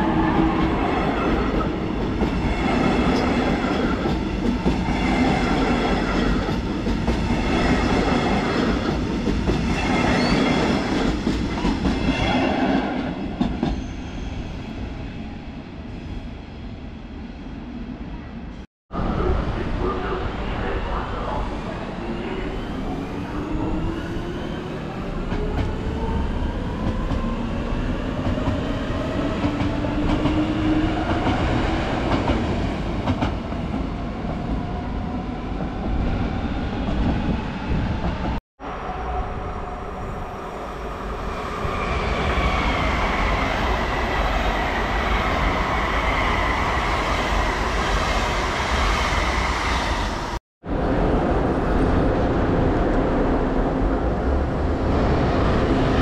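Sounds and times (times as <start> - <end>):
train wheels rumbling and clacking: 0.3 - 14.2, 25.1 - 34.8.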